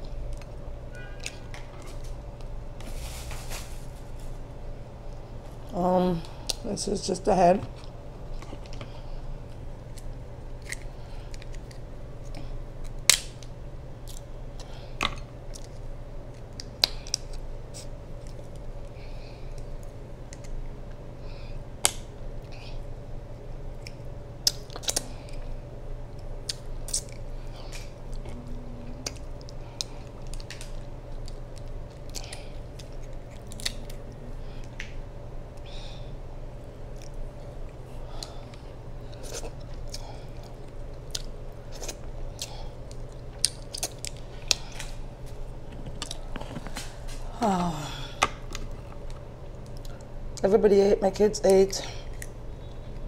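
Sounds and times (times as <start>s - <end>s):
steady low hum: 0.0s - 53.0s
chewing and mouth sounds: 22.4s - 35.0s, 36.8s - 47.6s, 52.0s - 52.8s.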